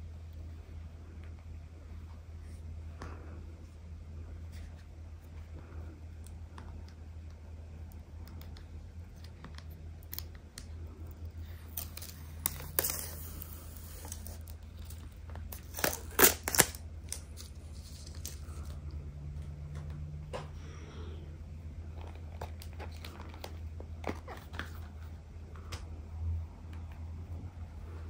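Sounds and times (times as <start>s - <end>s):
low steady hum: 0.0s - 28.0s
plastic film crackling: 11.4s - 18.8s.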